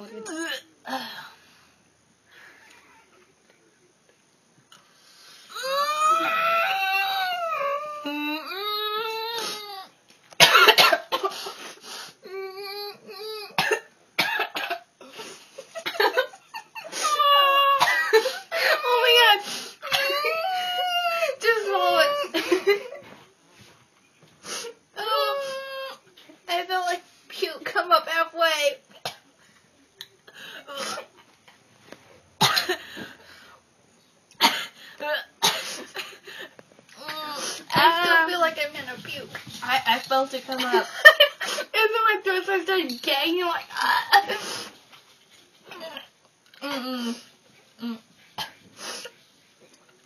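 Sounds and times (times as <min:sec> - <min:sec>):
strained vocal cries of disgust: 0:05.5 - 0:09.9, 0:18.6 - 0:22.4
person coughing hard: 0:10.4 - 0:11.3, 0:13.6 - 0:14.9, 0:17.8 - 0:18.8, 0:32.4 - 0:32.8, 0:34.4 - 0:35.8.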